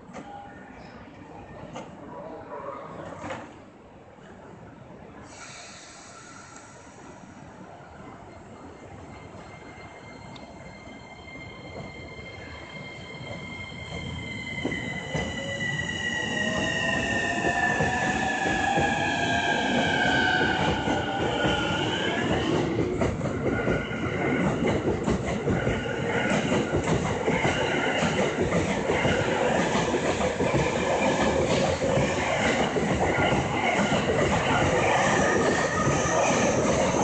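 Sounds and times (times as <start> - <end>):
train wheels rumbling on rails: 13.2 - 37.0.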